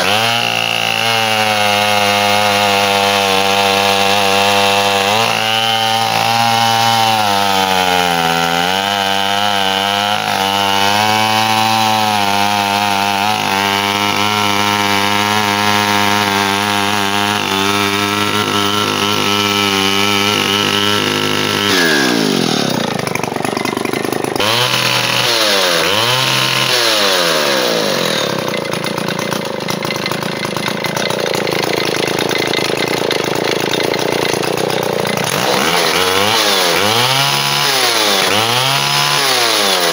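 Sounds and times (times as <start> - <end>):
chainsaw engine idling and revving: 0.0 - 39.9.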